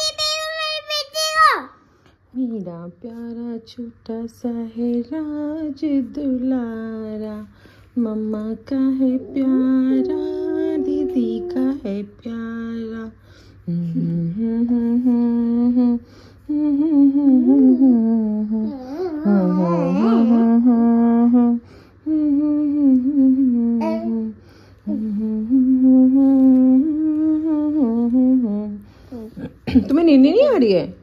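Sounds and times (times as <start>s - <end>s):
woman humming: 8.0s - 29.6s.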